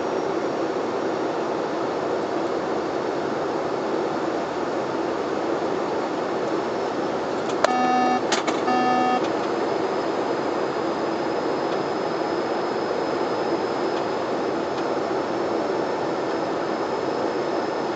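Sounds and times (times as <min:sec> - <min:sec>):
turboprop cockpit noise: 0:01.1 - 0:17.9
faint high-pitched whine: 0:07.6 - 0:14.7
short electronic beeps: 0:07.7 - 0:09.3.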